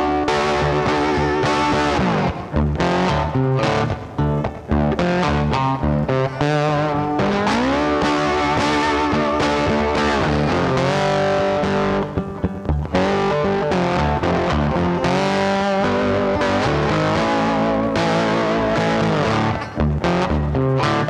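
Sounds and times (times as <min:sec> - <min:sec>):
distorted electric guitar rock music: 0:00.0 - 0:21.0.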